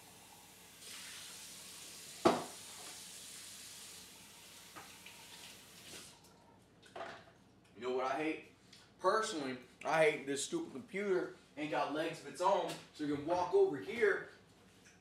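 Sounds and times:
eggs sizzling in a pan: 0.0 - 6.1.

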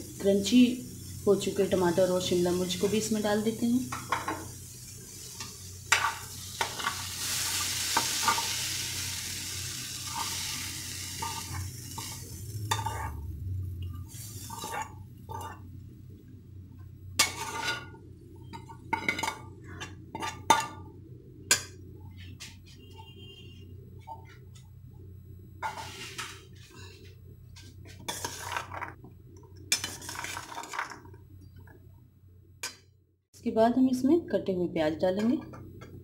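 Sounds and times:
vegetables sizzling: 0.0 - 16.2, 27.8 - 29.0, 29.6 - 31.2
metal spoon scraping steel bowl: 14.4 - 15.6.

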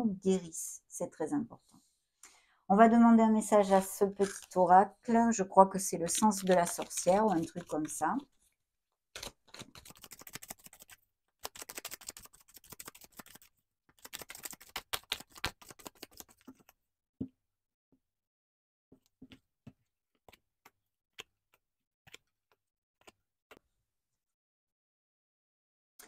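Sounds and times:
cards being shuffled: 3.7 - 4.6, 6.2 - 8.0, 9.2 - 16.8.

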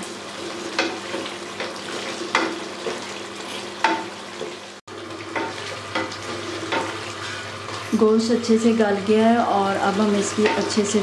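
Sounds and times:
curry sizzling in oil: 0.0 - 11.0.

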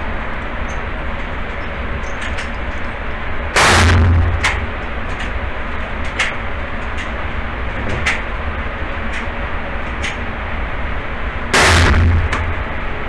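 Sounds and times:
motorised target carrier running: 0.0 - 13.0
loud long blast: 3.5 - 5.0, 11.5 - 12.9
gunshots: 11.6 - 12.3.

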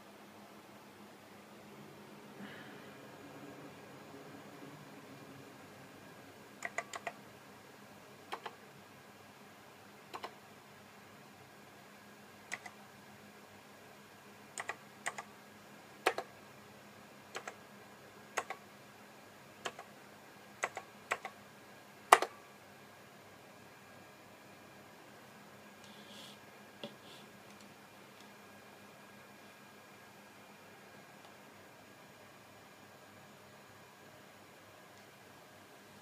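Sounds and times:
keyboard keys clicking: 6.6 - 7.2, 17.4 - 17.6.

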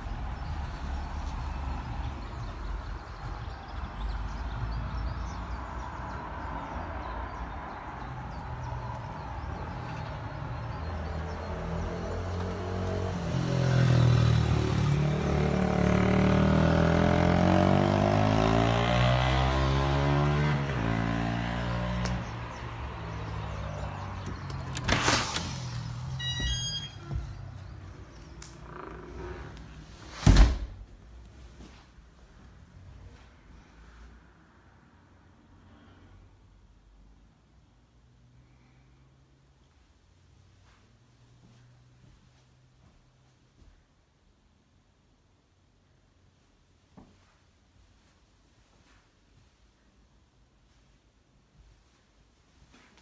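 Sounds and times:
low rumble of traffic: 0.0 - 53.0
short high tones: 26.2 - 27.2
door thudding open: 30.2 - 30.8.

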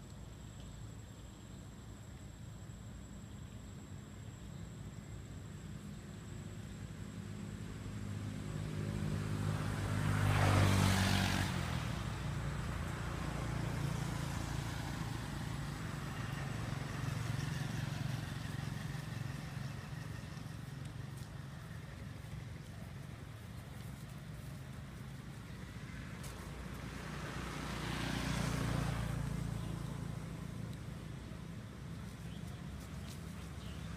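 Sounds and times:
engine hum: 0.0 - 33.9
vehicle passing: 7.0 - 33.9.

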